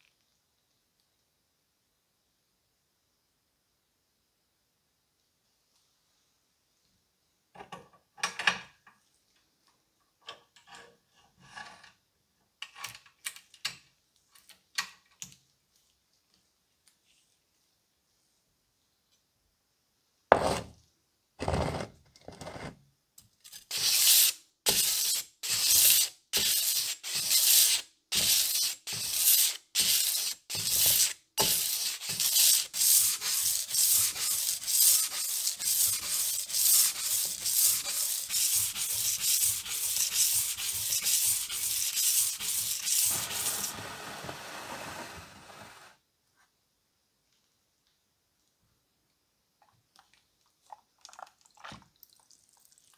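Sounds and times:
cleaver scraping across sandpaper: 23.5 - 43.8.

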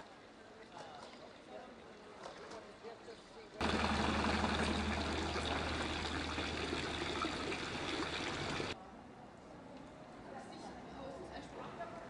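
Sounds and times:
street background: 0.0 - 12.0
fountain jet splashing into water: 3.6 - 8.8.

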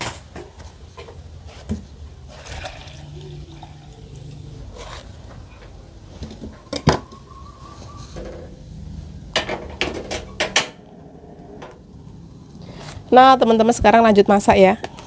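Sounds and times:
water pouring and glugging: 2.2 - 5.1.

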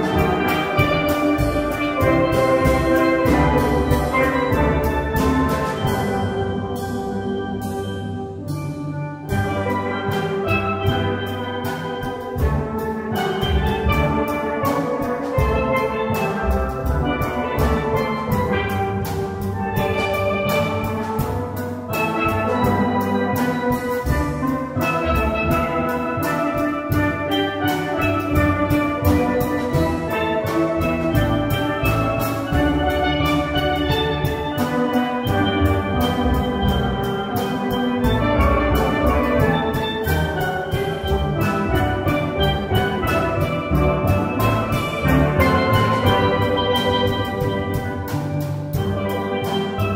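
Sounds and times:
drum beat: 0.0 - 7.2.

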